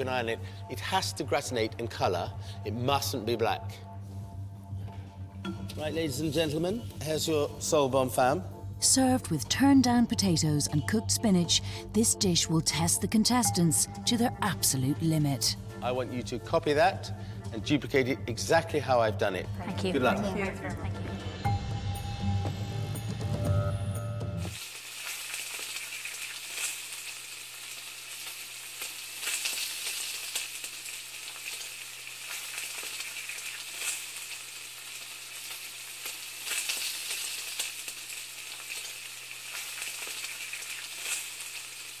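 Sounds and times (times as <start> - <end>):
music: 0.0 - 24.6
sizzling crackling hiss with pops: 24.4 - 42.0.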